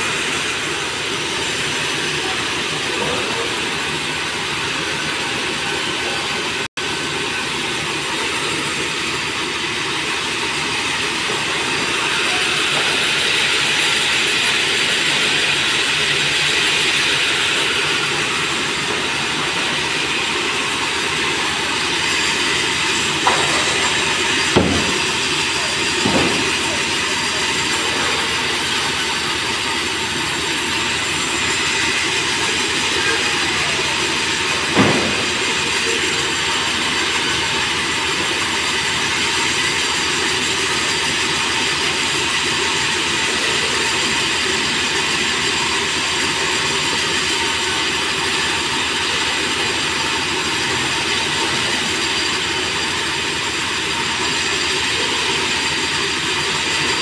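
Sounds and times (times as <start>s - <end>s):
band saw cutting timber: 0.0s - 57.0s
sharp knock: 23.2s - 25.3s, 26.0s - 26.8s, 34.7s - 35.5s.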